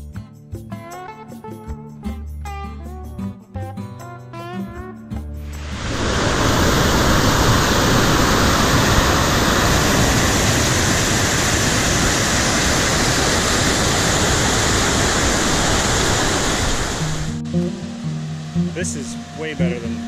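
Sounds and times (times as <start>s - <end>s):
whitewater rapids rushing: 5.5s - 17.4s.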